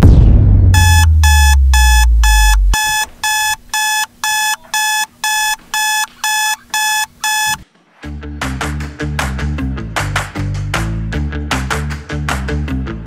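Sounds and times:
phone alarm beeping: 0:00.8 - 0:07.6
music with a beat: 0:07.3 - 0:13.0.

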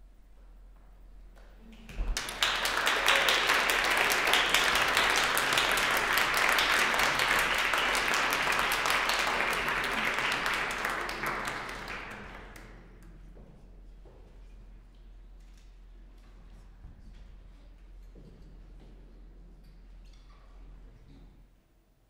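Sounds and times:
audience applauding: 0:02.0 - 0:12.8.

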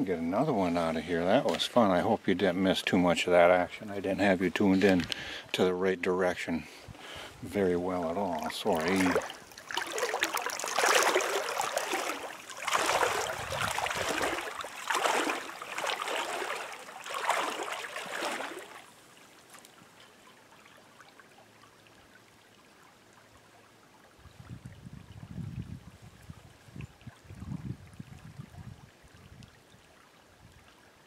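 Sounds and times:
water splashing: 0:07.6 - 0:22.0.

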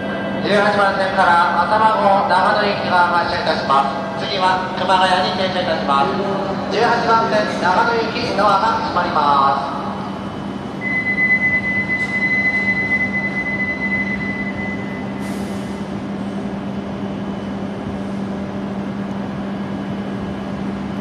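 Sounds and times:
steady high tone: 0:00.0 - 0:15.3
train low hum: 0:00.0 - 0:21.0.

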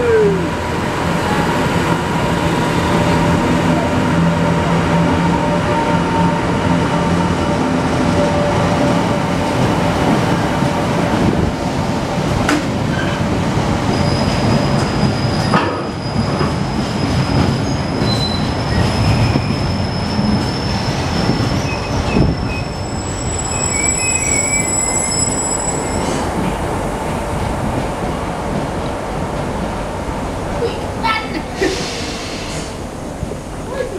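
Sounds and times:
high wheel squeal: 0:14.0 - 0:26.2.

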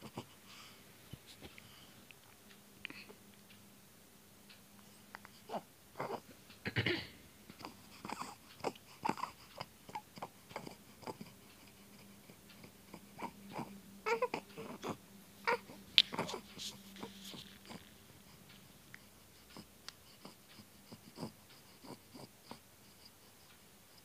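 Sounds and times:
infant fussing and grunting: 0:00.0 - 0:00.7, 0:05.2 - 0:06.8, 0:07.5 - 0:23.1.

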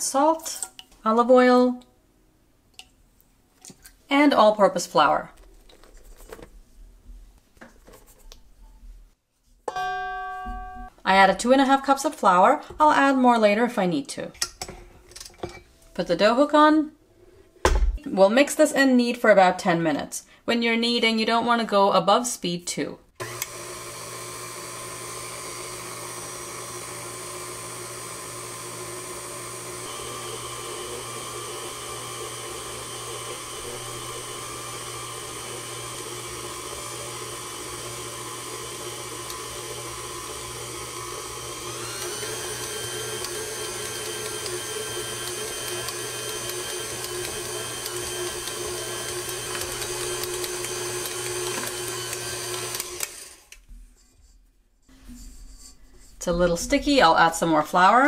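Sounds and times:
stand mixer motor humming: 0:23.2 - 0:53.6.

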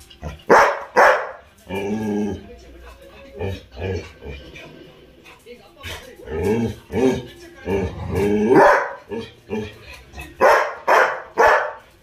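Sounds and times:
dogs barking: 0:00.2 - 0:01.8, 0:08.2 - 0:12.0.

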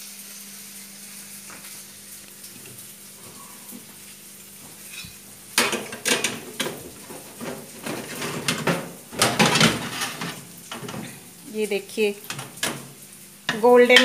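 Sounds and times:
baking tray scraping on oven rack: 0:04.8 - 0:11.2
metal clank: 0:05.0 - 0:11.2.

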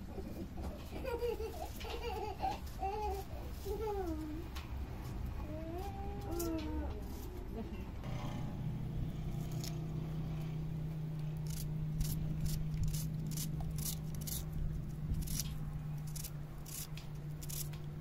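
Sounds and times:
steady low hum: 0:00.0 - 0:18.0
sharp scraping strokes: 0:11.4 - 0:17.9.

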